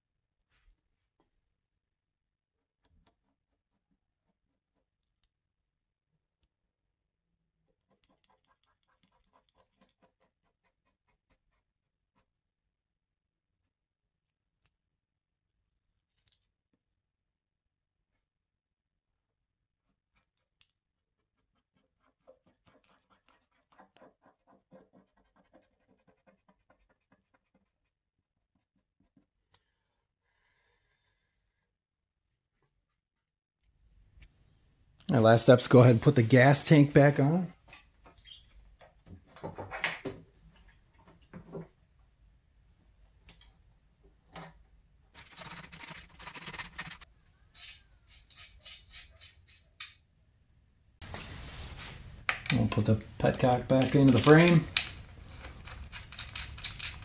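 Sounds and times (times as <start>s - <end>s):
faint rapid scratching strokes: 7.7s - 12.4s, 19.8s - 29.3s, 45.2s - 49.7s
quick run of clicks: 45.2s - 47.0s.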